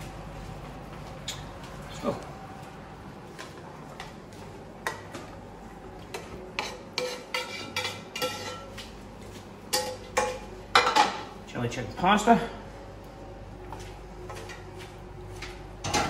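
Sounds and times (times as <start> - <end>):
metal spoon scraping a frying pan: 6.6 - 8.7.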